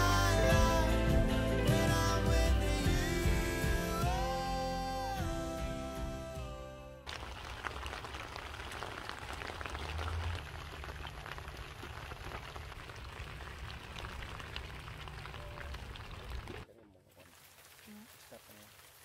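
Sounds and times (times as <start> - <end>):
music: 0.0 - 7.1
rain pattering: 7.1 - 19.0.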